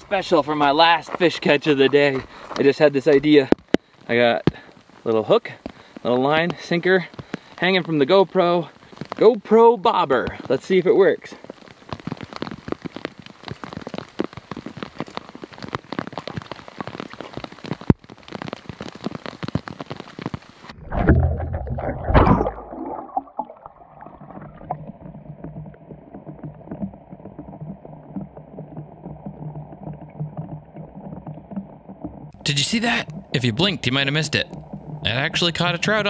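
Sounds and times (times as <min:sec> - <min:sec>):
rain pattering: 0:00.0 - 0:21.8, 0:22.6 - 0:36.0
camera splashing into water: 0:20.7 - 0:23.6
low steady underwater hum: 0:20.8 - 0:32.3, 0:34.4 - 0:35.2
drops ticking sharply: 0:30.2 - 0:36.0.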